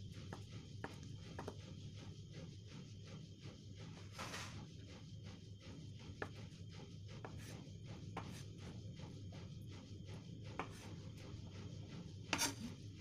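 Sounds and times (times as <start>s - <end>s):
knife slicing tofu: 12.4s - 12.7s.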